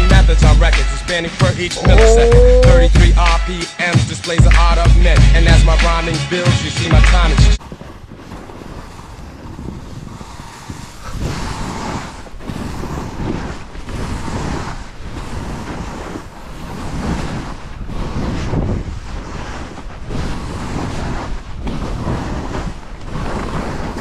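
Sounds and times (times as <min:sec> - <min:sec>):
skis scraping through snow: 0:07.6 - 0:24.0
wind rushing over microphone: 0:07.6 - 0:24.0.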